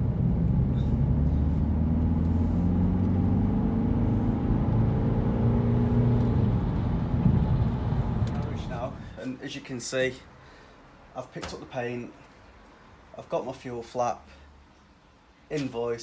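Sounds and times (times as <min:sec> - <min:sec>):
car engine hum: 0:00.0 - 0:09.1
road noise: 0:00.0 - 0:16.0.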